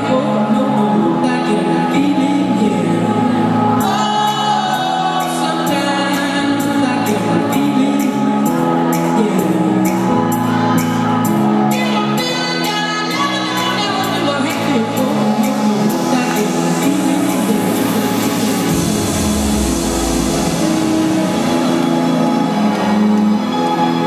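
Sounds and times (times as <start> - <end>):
house music with vocals: 0.0 - 24.0.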